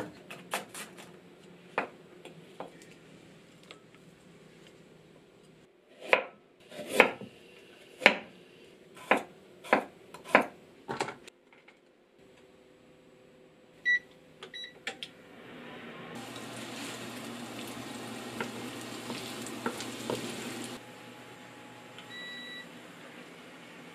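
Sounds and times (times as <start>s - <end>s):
cooktop control beeps: 13.8s - 14.8s, 22.0s - 22.7s.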